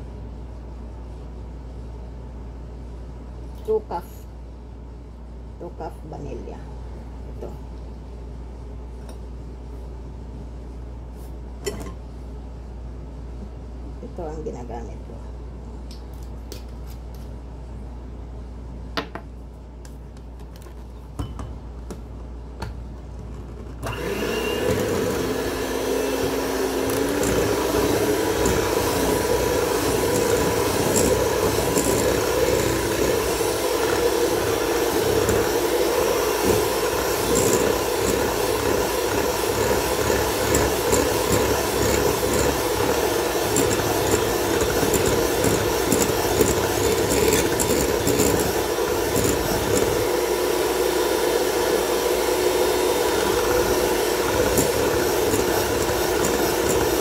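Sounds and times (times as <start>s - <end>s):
electric hand mixer whirring: 23.8s - 57.0s.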